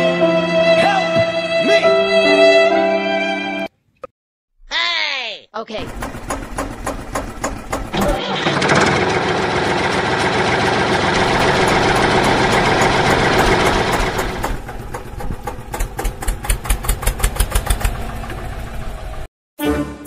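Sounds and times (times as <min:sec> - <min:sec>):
tractor engine chugging: 0:05.8 - 0:19.3.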